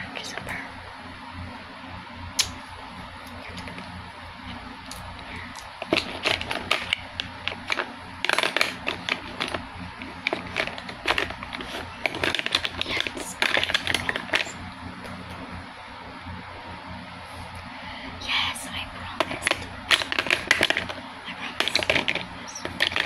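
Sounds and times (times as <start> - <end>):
fingers handling plastic tube: 5.8 - 14.6, 19.2 - 23.0.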